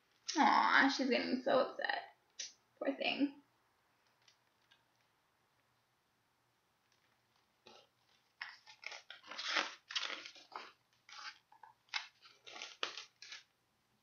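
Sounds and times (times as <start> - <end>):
book pages rustling: 6.9 - 13.6.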